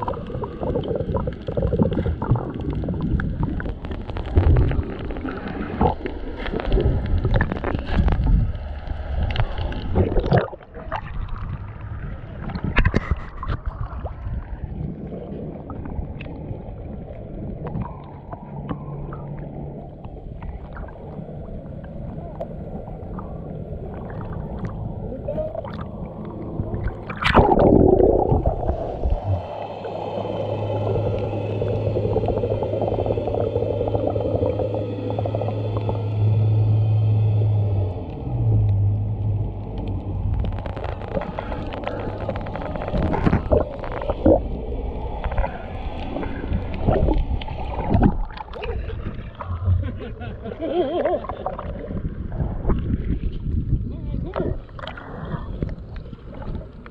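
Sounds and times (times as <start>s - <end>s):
muffled sloshing underwater: 0.0s - 56.9s
water splashing against camera: 0.0s - 56.9s
steady low hum: 14.0s - 56.9s.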